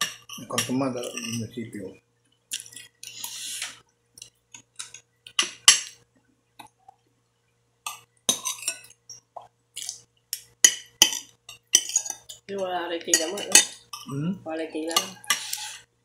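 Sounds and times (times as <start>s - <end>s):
cutlery clinking and scraping on plate: 0.0s - 1.5s, 2.6s - 6.0s, 7.9s - 9.2s, 9.8s - 12.4s, 13.1s - 14.2s, 14.9s - 15.9s.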